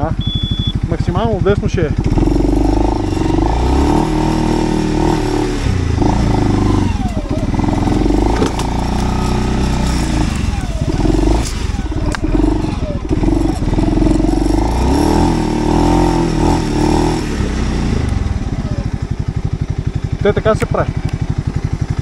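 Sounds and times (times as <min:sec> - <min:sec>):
atv engine revving under load: 0:00.0 - 0:22.0
sharp knocks and clatter: 0:07.9 - 0:10.4.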